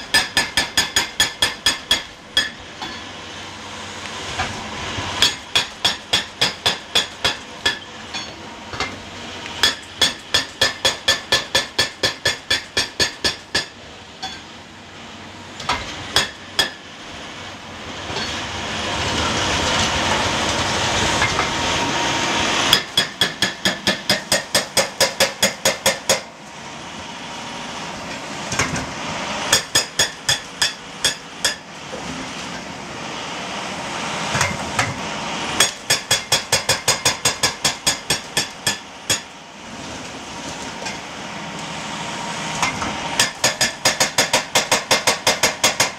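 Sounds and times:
hydraulic breaker hammer pounding rock: 0:00.0 - 0:03.1, 0:05.2 - 0:09.0, 0:09.6 - 0:14.5, 0:15.6 - 0:16.9, 0:22.7 - 0:26.3, 0:29.5 - 0:31.7, 0:35.6 - 0:39.3, 0:42.6 - 0:45.9
excavator engine and hydraulics: 0:00.0 - 0:45.9.

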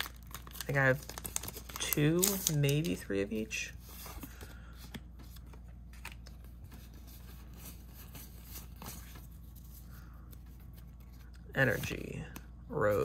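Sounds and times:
low steady hum: 0:00.0 - 0:13.0
trading cards being handled: 0:00.0 - 0:13.0.

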